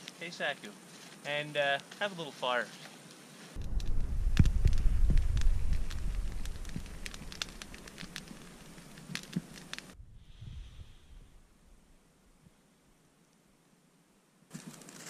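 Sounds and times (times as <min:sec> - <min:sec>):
fire crackling with pops: 0:00.0 - 0:10.0
low rumble: 0:03.6 - 0:09.0, 0:09.8 - 0:11.9.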